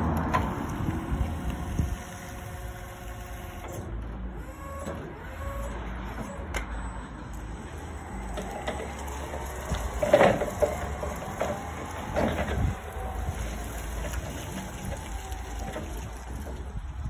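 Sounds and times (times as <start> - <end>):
electric motor whine and hum: 0.1 - 6.7, 7.5 - 17.0
forklift clunks and rattles: 0.1 - 17.0.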